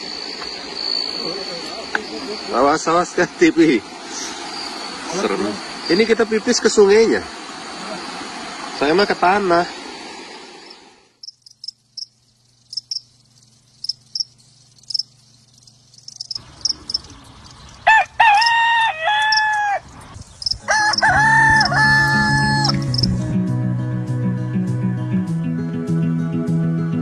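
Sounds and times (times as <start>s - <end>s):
rooster crowing: 17.8s - 23.1s
guitar music: 21.3s - 27.0s.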